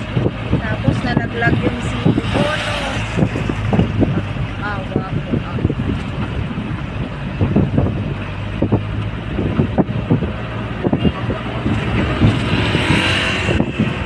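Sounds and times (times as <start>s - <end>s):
vehicle road and engine noise: 0.0s - 14.0s
wind buffeting microphone: 0.0s - 14.0s
passing motorcycle: 8.6s - 14.0s.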